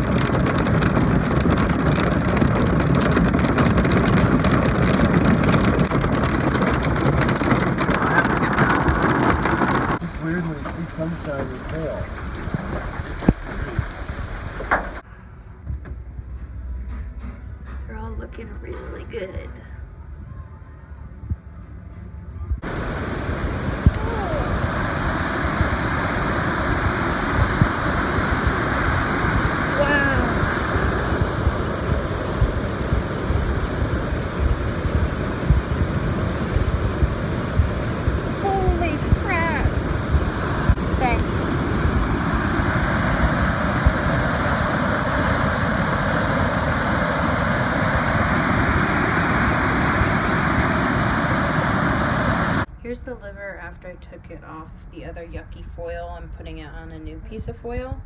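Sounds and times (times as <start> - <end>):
creek water rushing: 7.8 - 15.0, 22.6 - 52.7.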